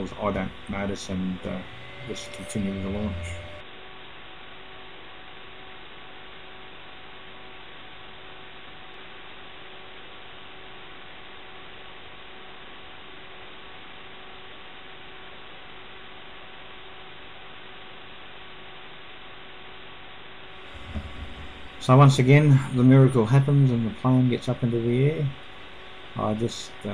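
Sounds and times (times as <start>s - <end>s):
electrical hiss: 0.0s - 3.6s, 20.5s - 26.9s
faint tonal hum: 0.0s - 3.7s, 20.5s - 26.9s.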